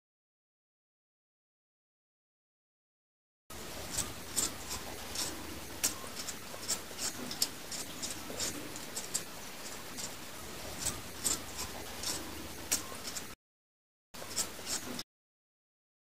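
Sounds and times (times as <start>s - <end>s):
shell scraping beetroot skin: 3.7s - 13.4s, 14.2s - 15.0s.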